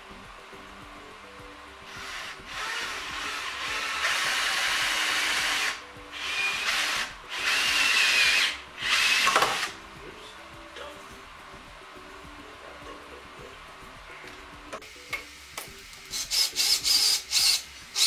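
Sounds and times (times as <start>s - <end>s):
cordless drill drilling into wood: 1.9s - 9.8s, 16.1s - 18.0s.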